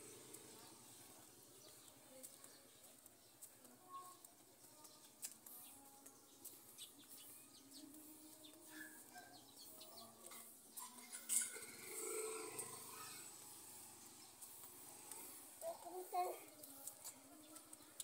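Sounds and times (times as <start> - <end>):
footsteps on concrete: 0.6 - 10.8, 14.1 - 18.0.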